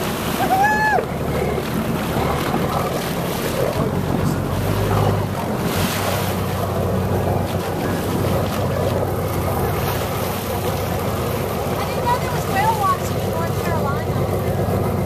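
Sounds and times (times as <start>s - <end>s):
low steady boat hum: 0.0s - 15.0s
water wash: 0.0s - 15.0s.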